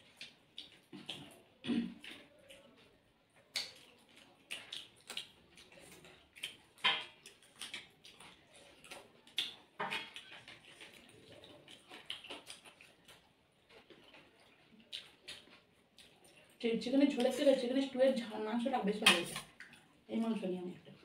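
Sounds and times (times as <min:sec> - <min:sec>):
wet chewing smacks: 0:00.0 - 0:17.4, 0:19.4 - 0:21.0.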